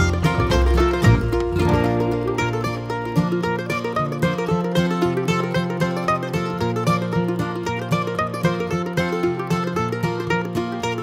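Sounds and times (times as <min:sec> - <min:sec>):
upbeat plucked-string tune: 0:00.0 - 0:11.0.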